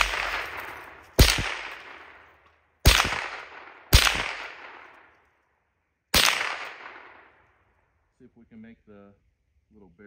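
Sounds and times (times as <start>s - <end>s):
rifle shots with echo: 0.0s - 5.3s, 6.1s - 7.6s.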